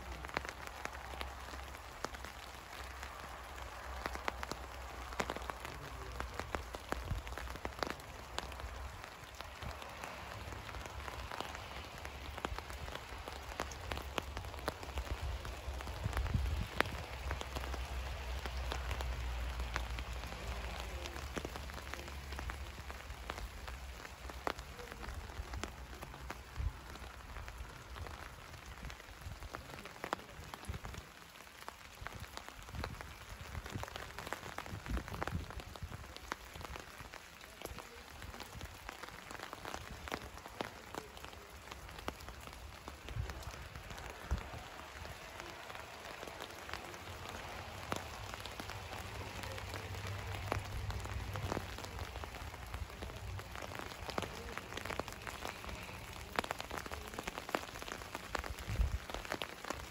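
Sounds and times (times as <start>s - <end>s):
rain falling on leaves: 0.0s - 59.9s
wind rumble on microphone: 15.0s - 17.1s, 34.6s - 36.0s, 58.5s - 59.2s.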